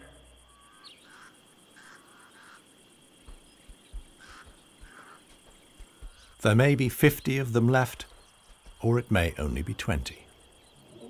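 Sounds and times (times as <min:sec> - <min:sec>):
insects chirping: 0:00.0 - 0:11.0
low thumps: 0:03.2 - 0:09.1.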